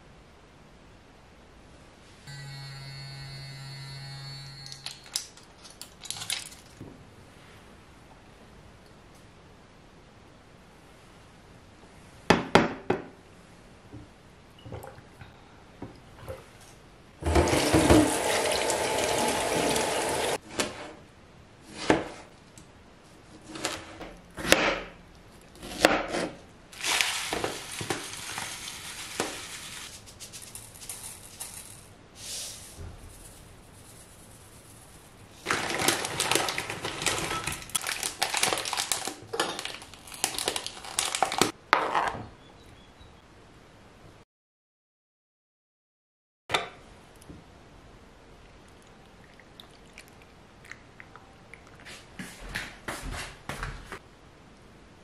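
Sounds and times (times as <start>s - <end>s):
water running: 17.2s - 20.4s, 48.7s - 52.4s.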